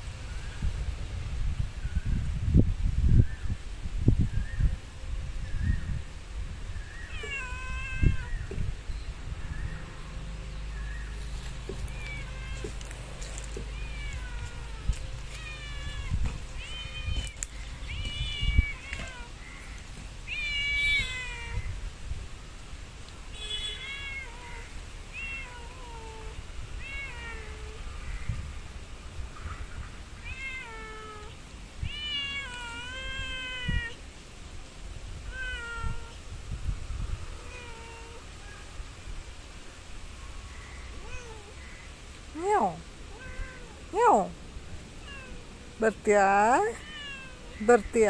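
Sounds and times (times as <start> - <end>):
cat meowing: 7.1 - 8.5, 11.6 - 19.4, 20.3 - 21.8, 23.7 - 27.8, 30.2 - 34.0, 35.3 - 36.2, 41.0 - 41.6, 43.1 - 44.3, 45.0 - 45.5, 46.5 - 47.6.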